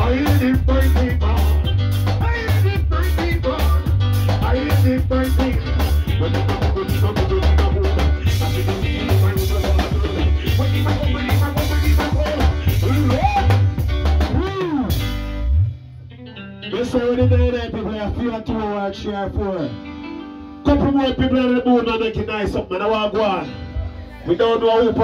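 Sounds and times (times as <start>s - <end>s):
drum kit beat: 0.0s - 15.8s
live band playing upbeat groove: 0.0s - 16.0s
heavy bass line: 0.0s - 19.6s.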